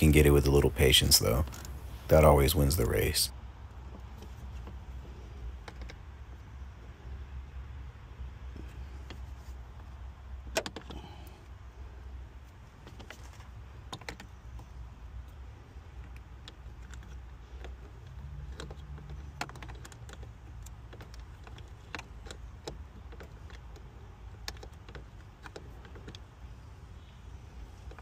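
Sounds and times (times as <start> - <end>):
steady low rumble: 0.0 - 18.2.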